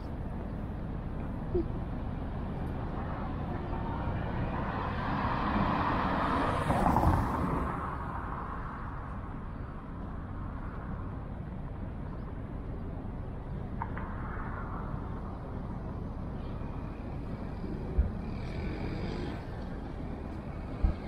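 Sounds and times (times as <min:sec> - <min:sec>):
street ambience: 0:00.0 - 0:21.0
car passing by: 0:03.8 - 0:08.5.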